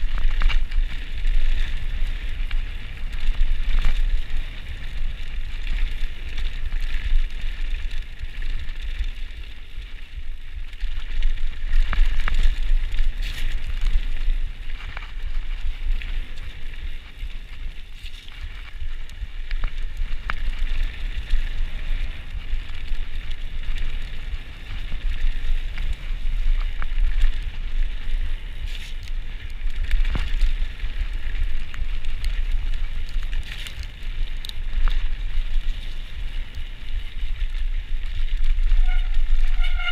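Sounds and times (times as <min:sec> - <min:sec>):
bike rattling: 0:00.0 - 0:39.9
bike tyres on dirt and stones: 0:00.0 - 0:39.9
wind buffeting microphone: 0:00.0 - 0:39.9.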